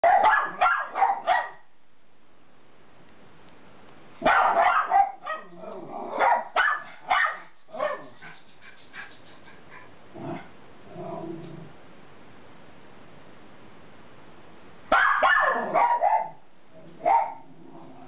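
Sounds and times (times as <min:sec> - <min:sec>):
dogs barking high-pitched: 0:00.0 - 0:01.7, 0:04.2 - 0:08.4, 0:14.9 - 0:16.4, 0:17.0 - 0:17.5
dog growling: 0:05.4 - 0:06.2, 0:10.1 - 0:11.8, 0:16.8 - 0:18.0.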